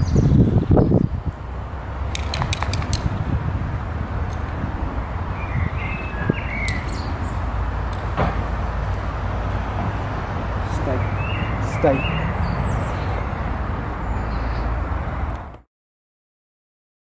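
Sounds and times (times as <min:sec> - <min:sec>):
bird chirping: 0:00.0 - 0:01.3, 0:02.1 - 0:03.2, 0:05.2 - 0:08.1, 0:10.6 - 0:14.8
steady low rumble: 0:00.0 - 0:14.1
sharp clicks: 0:02.1 - 0:03.2, 0:06.6 - 0:06.9.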